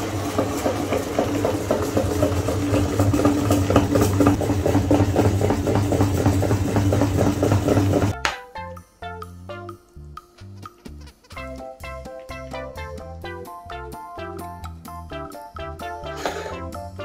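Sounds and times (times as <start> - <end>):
meat grinder motor humming: 0.0 - 8.2.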